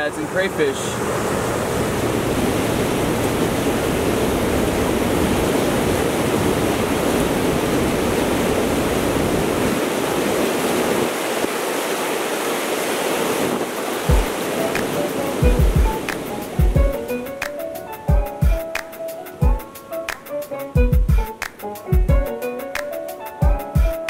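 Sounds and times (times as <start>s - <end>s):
wind rumbling on microphone: 1.3s - 11.9s, 13.1s - 15.0s
river water rushing over rocks: 1.6s - 17.5s.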